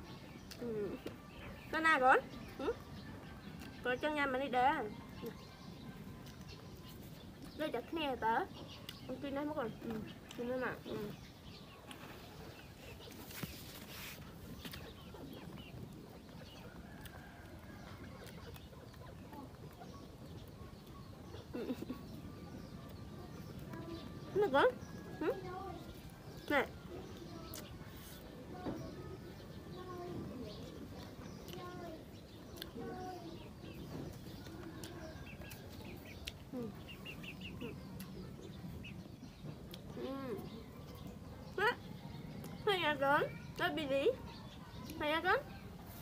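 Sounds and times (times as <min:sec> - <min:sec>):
small birds chirping: 0:00.0 - 0:46.0
chickens clucking: 0:08.5 - 0:42.6.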